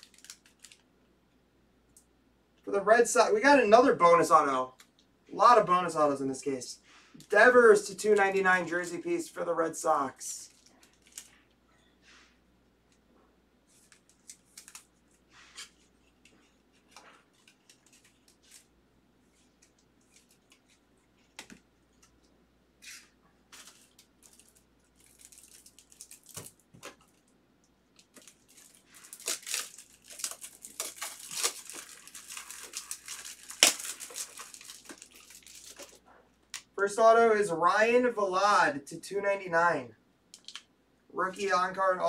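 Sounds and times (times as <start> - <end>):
foil wrapper crinkling: 0.0 - 0.9, 10.3 - 11.6, 22.9 - 27.3, 27.9 - 36.0.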